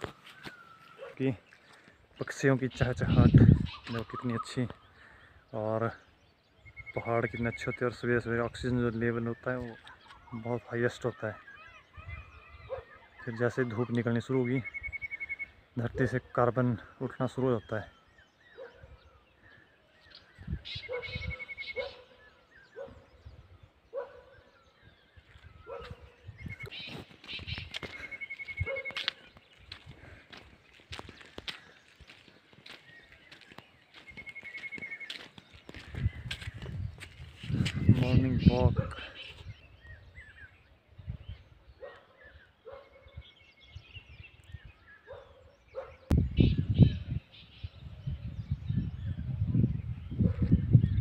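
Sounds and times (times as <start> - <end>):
birds chirping: 0.0 - 51.0
dog barking: 1.0 - 1.2, 12.7 - 13.0, 18.6 - 18.9, 20.9 - 21.2, 21.8 - 22.2, 23.9 - 24.4, 25.7 - 26.0, 28.6 - 29.2, 41.8 - 43.1, 45.1 - 46.1
animal calls: 11.4 - 14.0, 20.7 - 23.2, 25.6 - 29.3.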